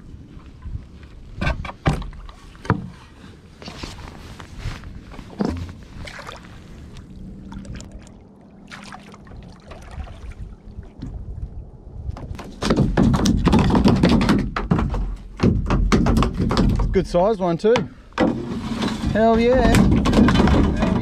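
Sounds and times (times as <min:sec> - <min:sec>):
water splashing from paddle strokes: 0:05.3 - 0:11.0
knocks against kayak hull: 0:12.2 - 0:17.0.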